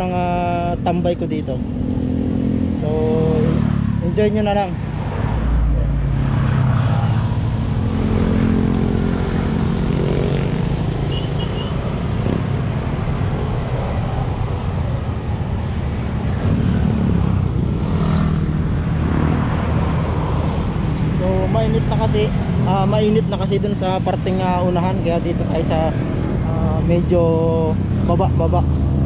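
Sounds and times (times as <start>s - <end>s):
road traffic drone: 0.0s - 29.0s
motorcycles riding past: 1.6s - 23.2s.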